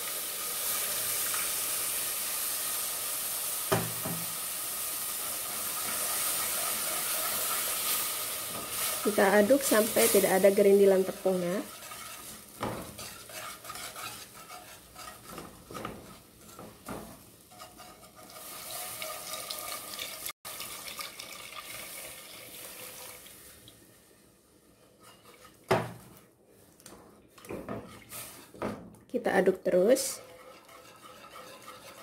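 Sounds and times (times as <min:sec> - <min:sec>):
whisk scraping and clinking in saucepan: 0:11.6 - 0:19.9, 0:24.9 - 0:25.6, 0:30.1 - 0:32.0.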